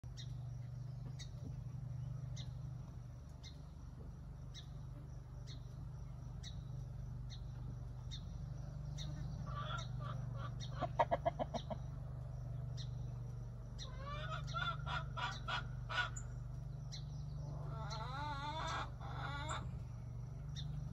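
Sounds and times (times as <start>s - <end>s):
low steady hum: 0.0s - 20.9s
chickens clucking: 9.0s - 12.1s, 13.8s - 16.5s, 17.5s - 19.8s.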